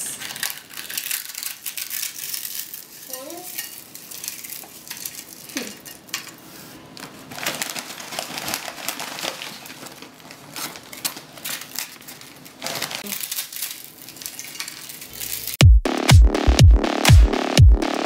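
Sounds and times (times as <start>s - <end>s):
tortilla chips crunching: 0.0s - 6.2s, 7.2s - 15.6s
electronic dance music: 15.4s - 18.0s.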